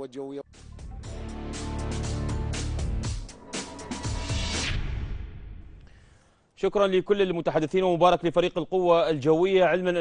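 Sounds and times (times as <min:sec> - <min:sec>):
sharp percussive hits: 0:02.5 - 0:05.8.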